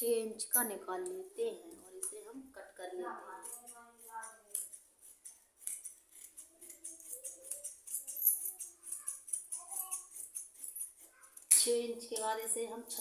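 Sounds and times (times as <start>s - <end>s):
scissors snipping fabric: 3.3s - 12.3s.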